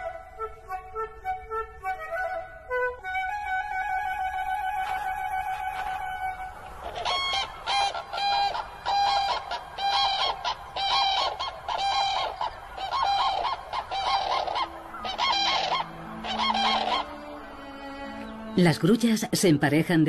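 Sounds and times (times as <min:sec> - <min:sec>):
cranes trumpeting calls: 0:04.9 - 0:19.2.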